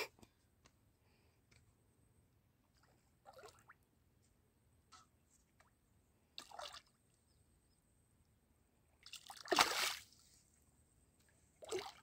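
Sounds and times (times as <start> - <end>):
fish splashing in water: 9.3 - 10.1.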